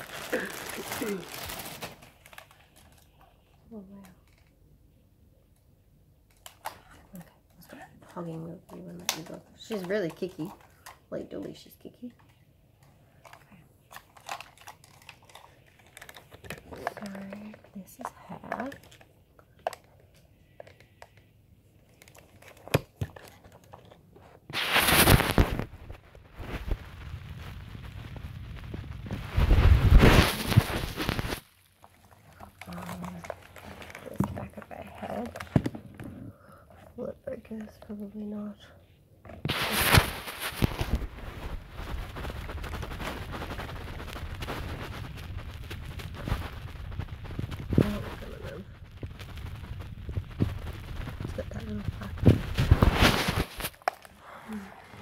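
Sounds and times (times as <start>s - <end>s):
rustling scrape: 22.0s - 35.5s, 39.4s - 55.0s
handling noise on microphone: 24.2s - 31.4s, 39.3s - 54.1s
low rumble with clicks: 42.6s - 52.6s.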